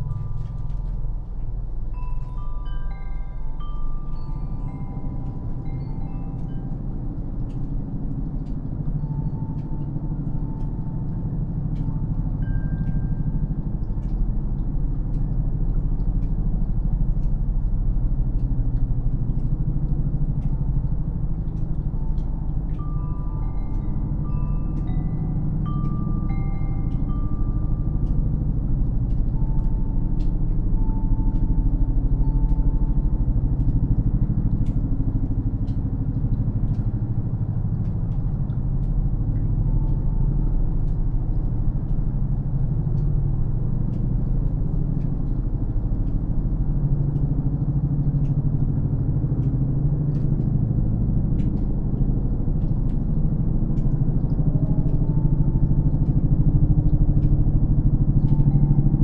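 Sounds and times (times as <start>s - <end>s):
wind chime notes: 0.0s - 13.8s, 21.8s - 34.3s, 57.8s - 59.0s
aircraft rumble: 0.0s - 59.0s
meltwater dripping: 9.6s - 59.0s.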